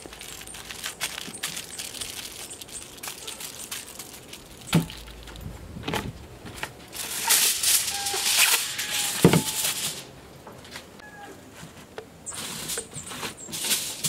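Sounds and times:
aluminium foil crinkling: 0.0s - 5.7s, 6.5s - 10.1s.

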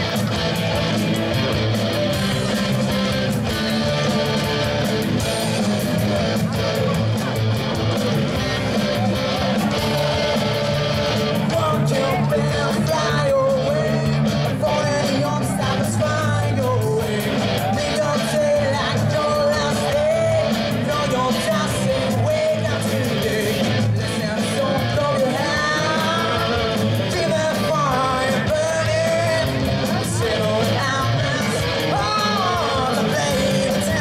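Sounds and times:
live rock band playing: 0.0s - 34.0s
lead vocalist singing: 8.2s - 34.0s.

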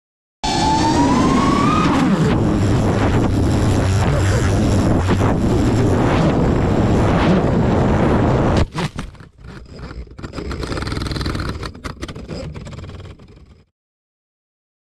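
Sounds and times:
wind rushing: 0.4s - 8.7s
drone motors and propellers: 0.4s - 13.7s
scattered clicks: 8.8s - 13.7s.

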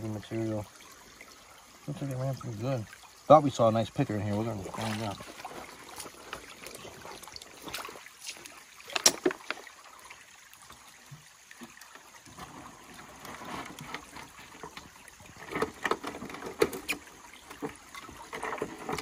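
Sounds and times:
water splashing into bucket: 4.1s - 10.8s
sluice knocking on bucket: 8.9s - 9.6s.

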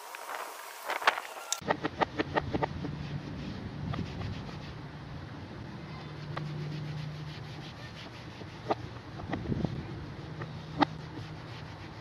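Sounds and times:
cloth rubbing on plastic: 6.0s - 12.0s.

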